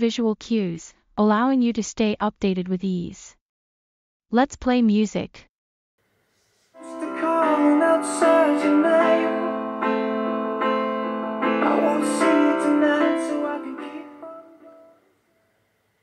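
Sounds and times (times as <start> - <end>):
piano music: 6.8 - 15.0.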